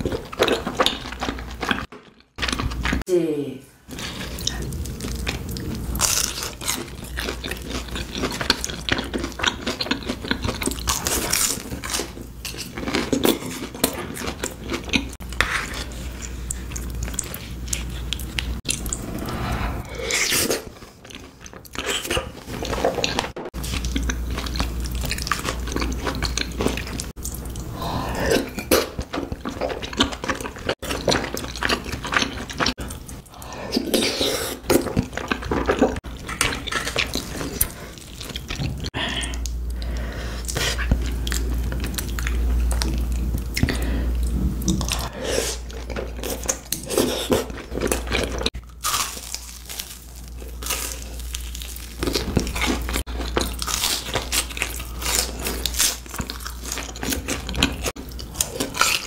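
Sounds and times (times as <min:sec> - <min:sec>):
crunching fried snacks: 0:04.5 - 0:15.9, 0:45.7 - 0:59.0.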